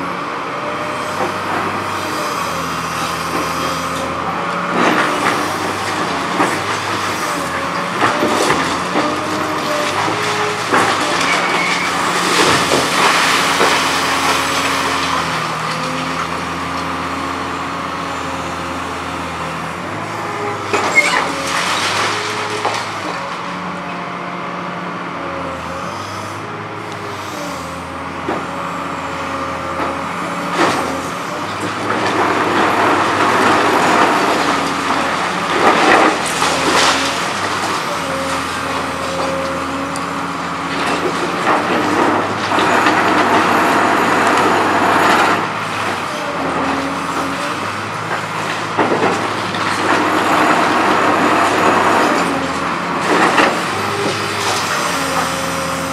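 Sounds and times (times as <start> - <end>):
excavator engine and hydraulics hum: 0.0 - 55.9
debris crashing down: 7.5 - 16.0, 20.7 - 23.1.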